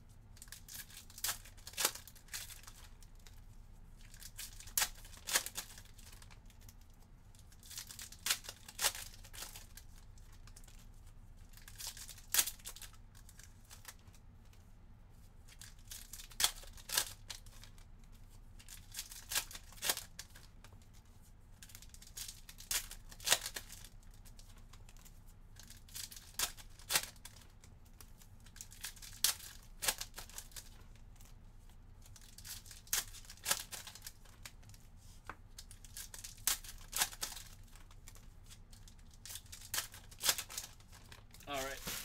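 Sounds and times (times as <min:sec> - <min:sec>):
foil wrappers tearing and crinkling: 0:00.4 - 0:03.3, 0:04.0 - 0:06.3, 0:07.6 - 0:10.0, 0:11.5 - 0:14.0, 0:15.5 - 0:17.8, 0:18.6 - 0:20.4, 0:21.7 - 0:25.0, 0:25.6 - 0:27.4, 0:28.4 - 0:30.8, 0:32.2 - 0:34.8, 0:35.6 - 0:42.0
cards being handled: 0:00.4 - 0:03.4, 0:04.0 - 0:06.8, 0:15.5 - 0:31.3, 0:32.1 - 0:42.0.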